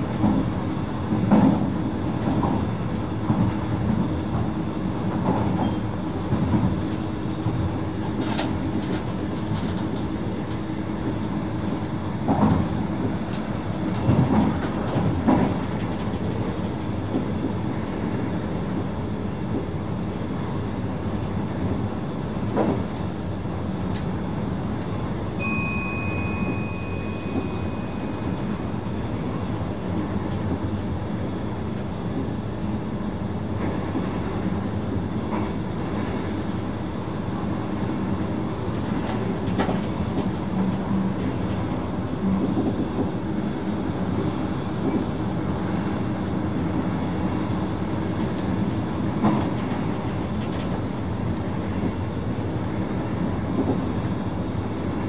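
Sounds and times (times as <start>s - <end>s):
electric train running noise: 0.0s - 55.0s
bright chime: 25.4s - 28.4s.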